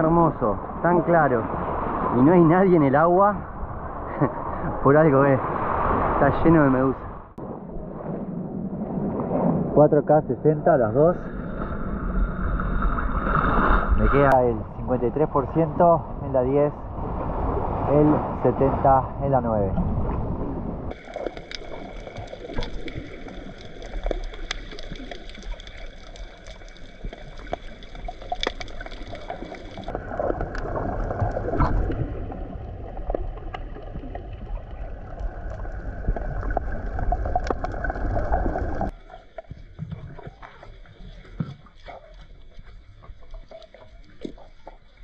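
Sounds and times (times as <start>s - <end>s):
underwater rumble: 0.0s - 45.0s
sharp clicks and crackles: 20.9s - 32.0s, 33.0s - 40.7s.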